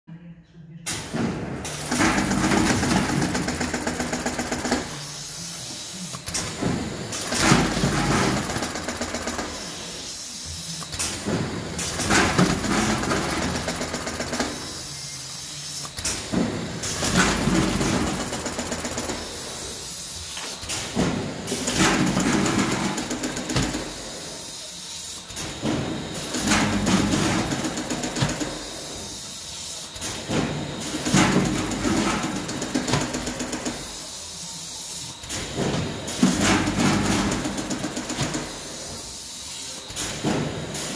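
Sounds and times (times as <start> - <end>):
machine hisses: 0.9 - 40.9
packing machine clatter: 1.0 - 5.0, 6.2 - 9.8, 10.9 - 14.8, 15.9 - 19.3, 20.3 - 24.0, 25.3 - 28.8, 29.9 - 33.8, 35.2 - 38.8.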